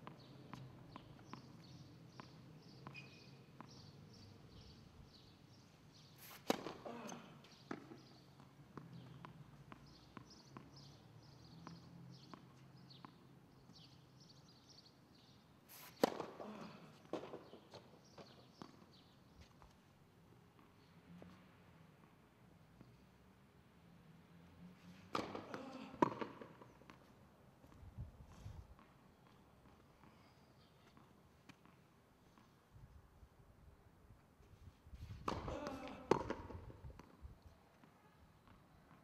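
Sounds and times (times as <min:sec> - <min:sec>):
tennis ball bouncing: 0:00.0 - 0:03.9, 0:06.3 - 0:14.0, 0:16.0 - 0:16.4, 0:17.0 - 0:19.1, 0:25.1 - 0:27.1, 0:35.2 - 0:37.2
racket hitting tennis ball: 0:06.2 - 0:08.1, 0:15.8 - 0:18.7, 0:25.1 - 0:27.0, 0:35.2 - 0:37.2.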